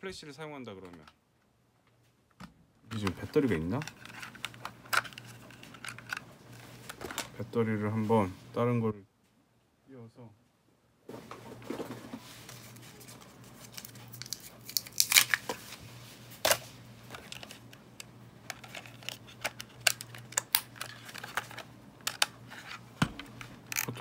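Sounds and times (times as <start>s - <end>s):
steady low hum: 0.5s - 24.0s
plastic toy cameras clicking and rattling: 2.9s - 7.3s, 16.4s - 22.8s, 23.4s - 24.0s.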